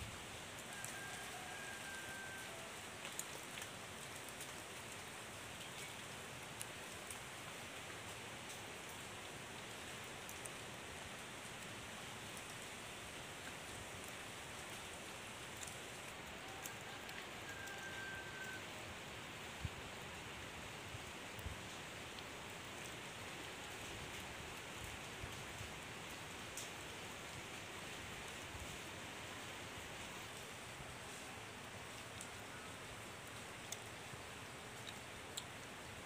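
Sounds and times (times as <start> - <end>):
faint clicks: 33.2 - 33.9, 34.8 - 35.6.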